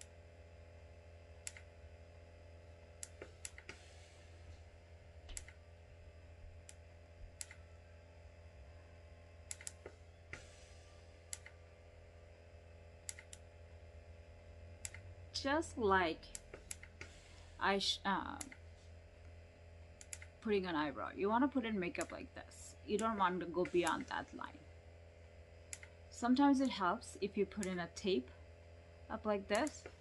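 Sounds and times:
low room hum: 0.0s - 30.0s
faint small clicks: 1.4s - 1.7s, 7.4s - 7.6s, 13.0s - 13.4s, 20.0s - 20.3s, 25.7s - 26.0s.

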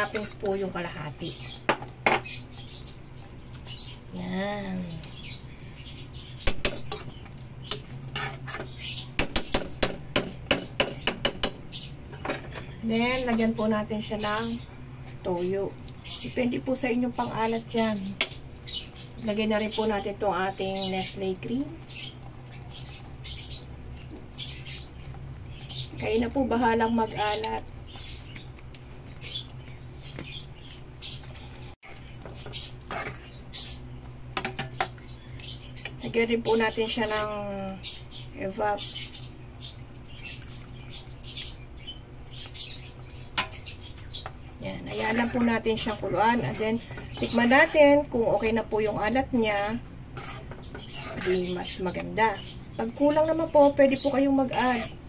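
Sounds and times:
low steady hum: 0.0s - 55.0s
metal utensil scraping a pan: 7.7s - 8.8s, 31.8s - 33.4s, 45.0s - 48.0s, 50.2s - 51.8s, 54.4s - 55.0s.

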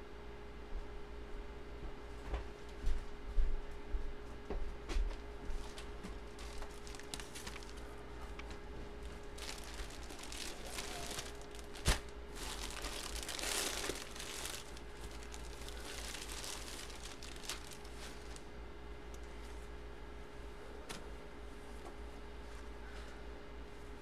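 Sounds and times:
plastic bag crinkling: 6.3s - 8.0s, 9.0s - 18.5s.

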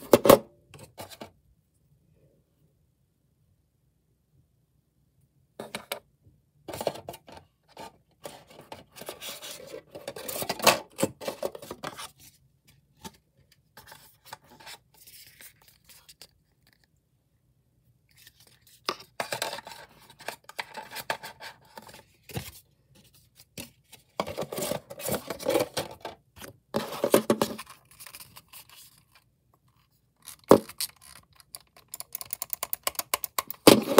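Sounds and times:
plastic scraping and scratching: 6.7s - 12.2s, 18.1s - 22.4s, 23.6s - 33.9s
rapid mouse clicks: 31.6s - 33.6s.

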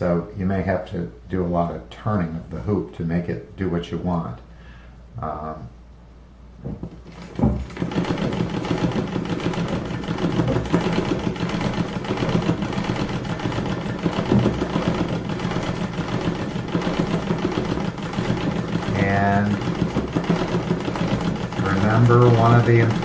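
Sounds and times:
treadle sewing machine clattering: 7.0s - 23.0s.

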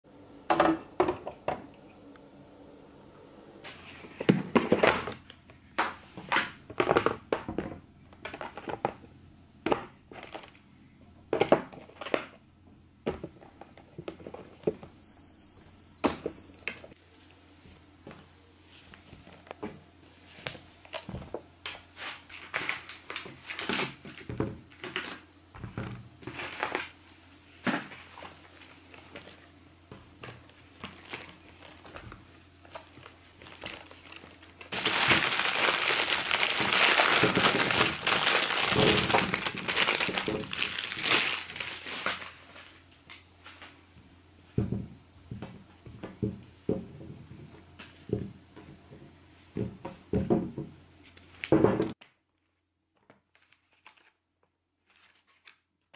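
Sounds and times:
bag crinkling: 30.6s - 32.0s, 32.6s - 42.8s.

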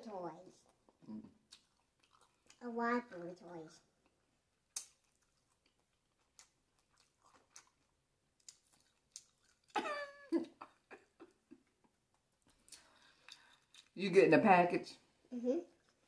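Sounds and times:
crunchy chewing: 0.7s - 2.6s, 4.0s - 9.8s
wet mouth clicks: 4.8s - 5.4s.

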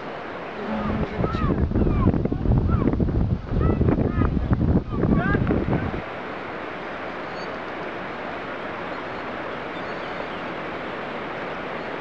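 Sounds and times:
mountain stream flowing: 0.0s - 12.0s
faint bird chirp: 7.2s - 7.7s, 8.9s - 10.6s.

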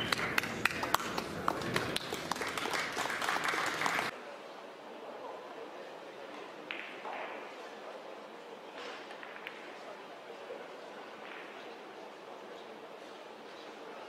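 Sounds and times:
audience applauding: 0.0s - 4.1s.

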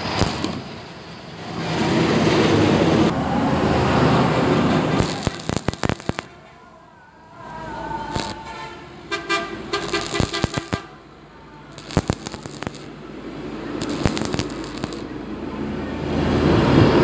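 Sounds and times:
welding arc crackling and popping: 0.0s - 0.8s, 4.9s - 6.3s, 8.1s - 8.4s, 9.8s - 10.9s, 11.7s - 12.9s, 13.8s - 15.1s.

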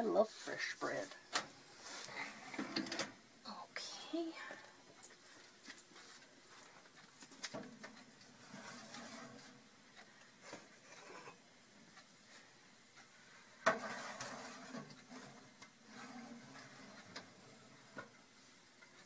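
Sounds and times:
faint clicks and knocks: 4.4s - 19.0s.

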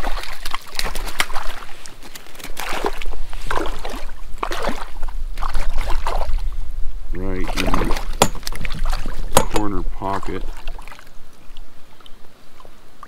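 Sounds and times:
fish thrashing at water surface: 0.0s - 6.4s, 7.4s - 11.1s
water splashing and sloshing: 0.0s - 13.0s.

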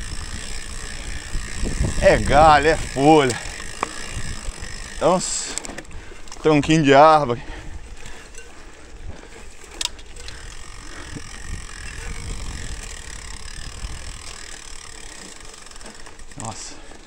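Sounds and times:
bike rattling: 0.0s - 17.0s
bike tyres rumbling on dirt trail: 0.0s - 17.0s.

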